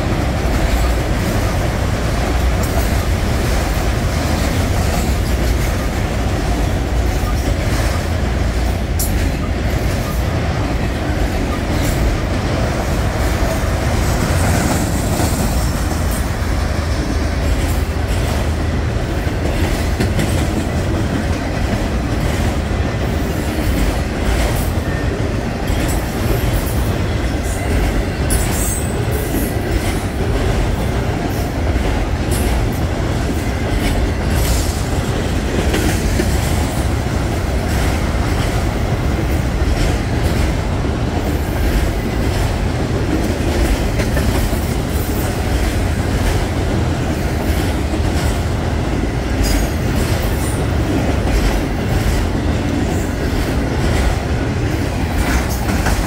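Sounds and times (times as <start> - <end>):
train wheels rumbling on rails: 0.0 - 56.0
wheels clicking on rail joints: 0.0 - 56.0.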